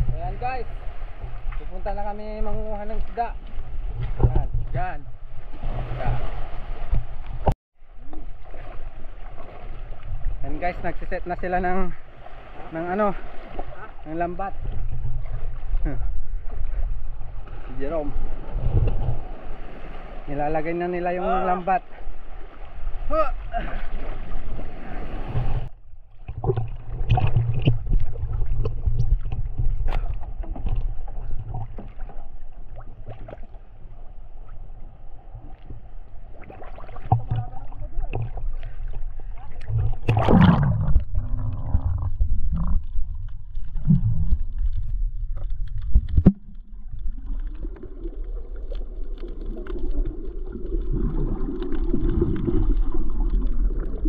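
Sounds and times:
sea water sloshing and splashing: 0:00.0 - 0:54.0
low rumble: 0:37.1 - 0:49.0.

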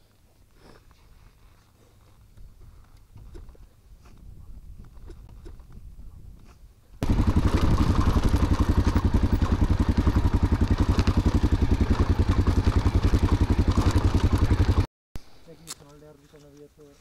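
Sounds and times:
motorcycle engine idling: 0:07.0 - 0:14.9.

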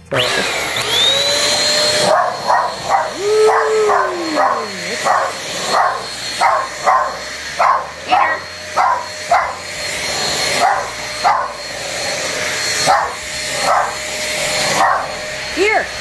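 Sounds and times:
vacuum cleaner motor whining: 0:00.0 - 0:16.0
dogs barking: 0:02.0 - 0:09.7, 0:10.5 - 0:11.6, 0:12.8 - 0:14.0, 0:14.7 - 0:15.2.

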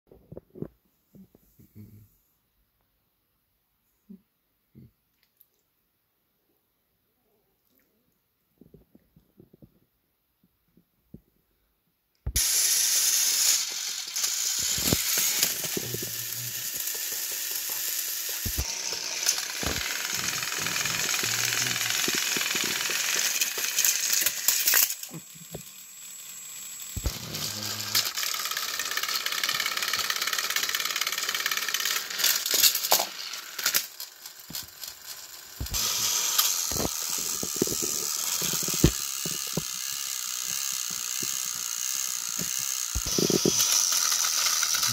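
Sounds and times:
rattles and clicks: 0:12.4 - 0:25.7
toy motors buzzing whine: 0:12.4 - 0:44.9.

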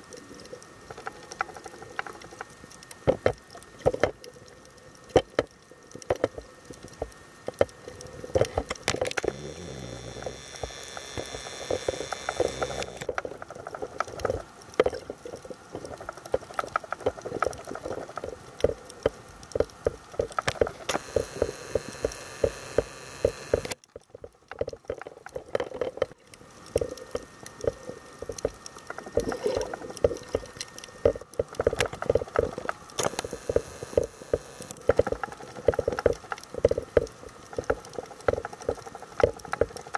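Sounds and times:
faint steady whine: 0:00.0 - 0:39.9
underwater crackling and clicking: 0:00.0 - 0:39.9.

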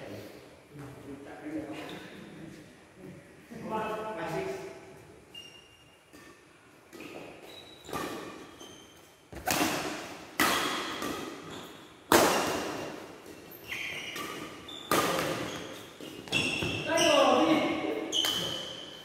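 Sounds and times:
court shoes squeaking: 0:05.2 - 0:19.0
racket hitting shuttlecock: 0:06.1 - 0:08.6, 0:09.3 - 0:17.0, 0:17.7 - 0:19.0.

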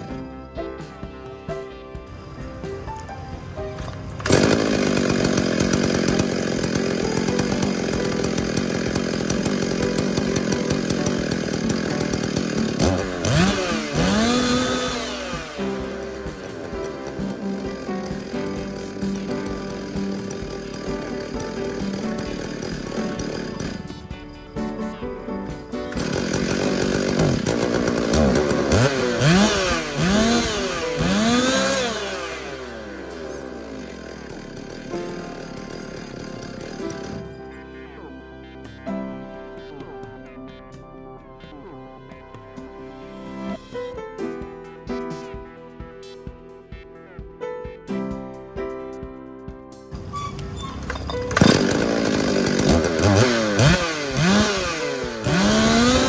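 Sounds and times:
chainsaw idling: 0:00.0 - 0:37.6, 0:50.1 - 0:56.0
chainsaw revving: 0:02.2 - 0:37.6, 0:50.1 - 0:56.0.

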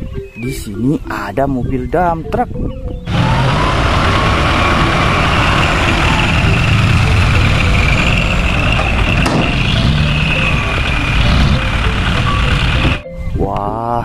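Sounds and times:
steady high whine: 0:03.1 - 0:13.0
truck engine rumbling: 0:03.1 - 0:13.0.

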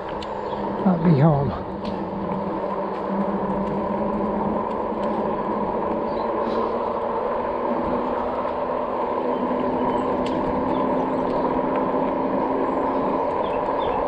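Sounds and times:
faint ticks: 0:00.0 - 0:00.6, 0:01.8 - 0:06.7
bike tyre noise: 0:00.0 - 0:14.0
low electric motor hum: 0:00.0 - 0:14.0
wind noise: 0:00.0 - 0:14.0.

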